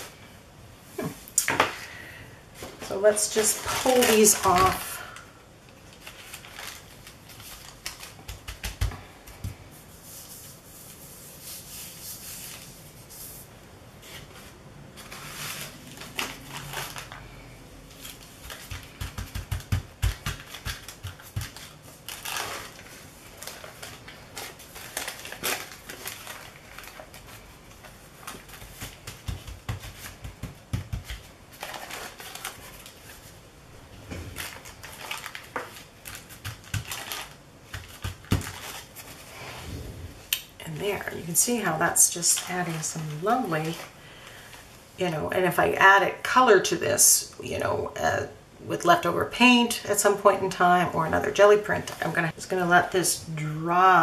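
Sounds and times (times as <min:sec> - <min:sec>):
paper rustling and crinkling: 0:02.6 - 0:05.2, 0:05.8 - 0:13.4, 0:14.0 - 0:33.4, 0:34.1 - 0:39.3, 0:40.9 - 0:44.7.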